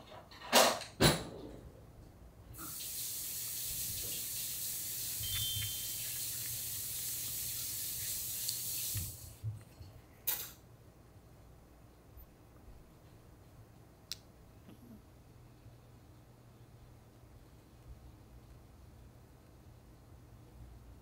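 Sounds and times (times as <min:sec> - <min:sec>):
tap water running into sink: 0:02.6 - 0:09.4.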